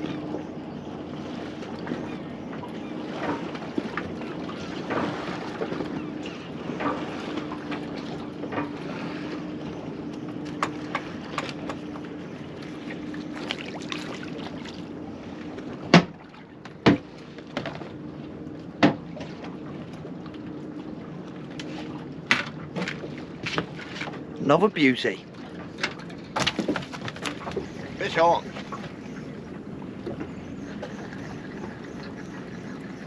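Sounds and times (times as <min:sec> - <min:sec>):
water around boat: 0:00.0 - 0:33.0
wind: 0:00.0 - 0:33.0
knocks against boat: 0:10.4 - 0:12.0, 0:15.8 - 0:18.0, 0:18.7 - 0:19.5, 0:22.2 - 0:24.2, 0:25.6 - 0:27.8.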